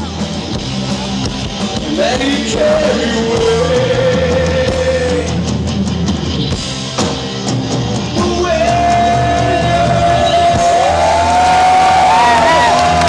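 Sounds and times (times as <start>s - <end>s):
live rock band playing: 0.0s - 13.0s
person singing: 1.7s - 5.4s, 8.2s - 12.9s.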